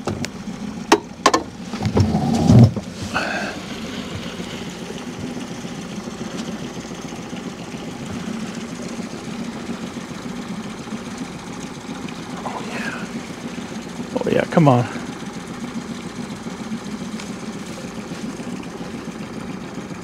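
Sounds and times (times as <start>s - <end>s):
outboard motor humming: 0.0s - 20.0s
sharp knocks and thump: 0.9s - 2.9s.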